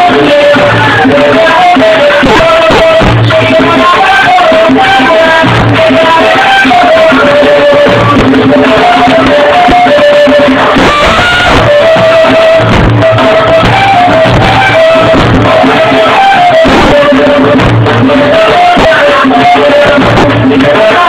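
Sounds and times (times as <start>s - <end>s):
hand drums beat: 0.0s - 21.0s
duct flute melody: 6.1s - 20.4s.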